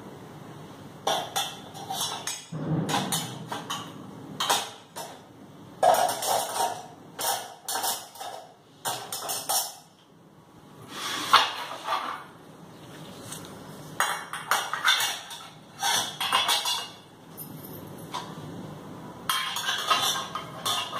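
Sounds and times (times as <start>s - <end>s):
metal dishes clattering: 1.0s - 5.2s, 5.8s - 9.9s, 14.0s - 18.3s, 19.3s - 20.9s.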